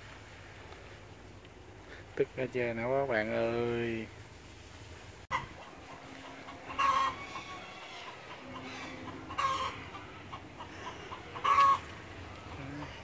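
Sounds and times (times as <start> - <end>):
chicken calls: 5.3 - 13.0.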